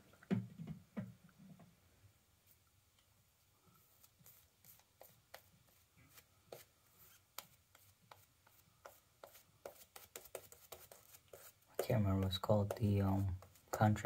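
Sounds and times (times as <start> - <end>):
shaving brush bristles scratching skin: 4.0 - 14.0.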